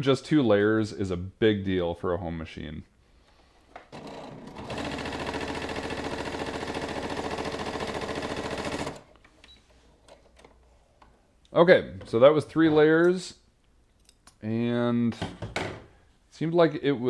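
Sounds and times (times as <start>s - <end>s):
sewing machine stitching leather: 3.9s - 9.2s.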